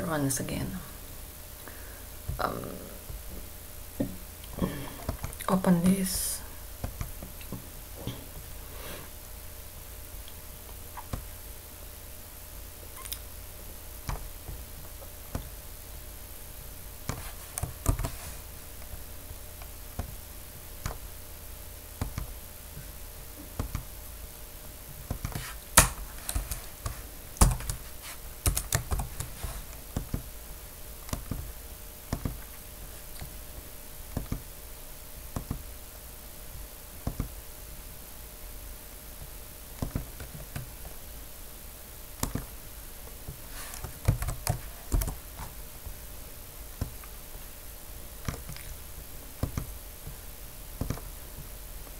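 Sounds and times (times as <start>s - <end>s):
faint steady hum: 0.0s - 51.9s
keyboard keystrokes: 28.4s - 29.3s.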